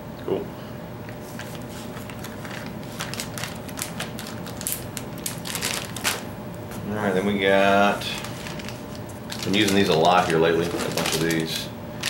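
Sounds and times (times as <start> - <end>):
packaging crinkling and rustling: 1.3 - 6.4, 7.9 - 12.0.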